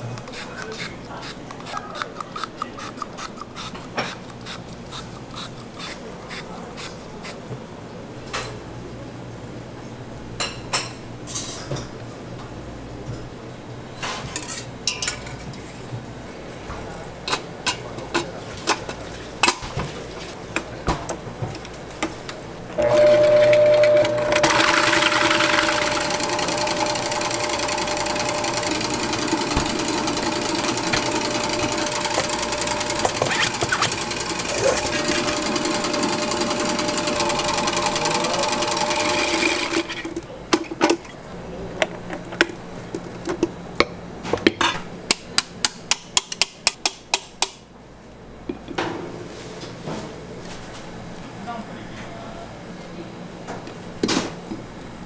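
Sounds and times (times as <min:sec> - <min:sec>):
stand mixer whirring: 0:22.8 - 0:40.1.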